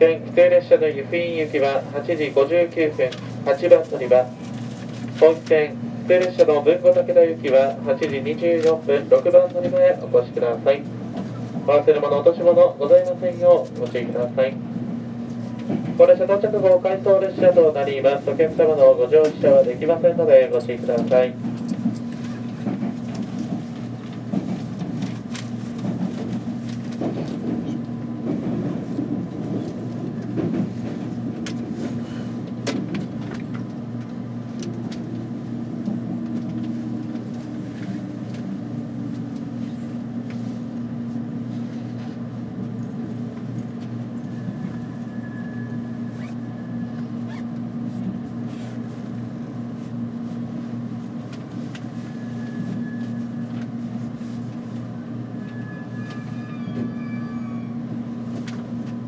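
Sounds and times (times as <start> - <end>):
electric train humming: 0.0 - 59.0
faint high tone: 55.4 - 57.8.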